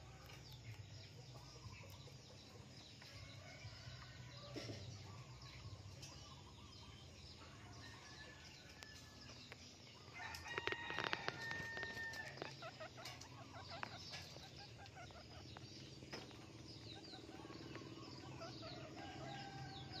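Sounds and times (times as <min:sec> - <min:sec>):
rooster crowing: 0:10.2 - 0:12.4.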